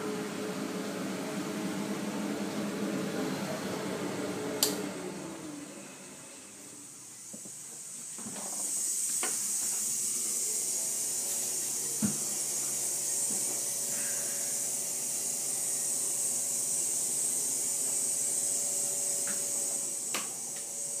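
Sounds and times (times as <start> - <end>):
high-pitched hiss: 5.9 - 21.0.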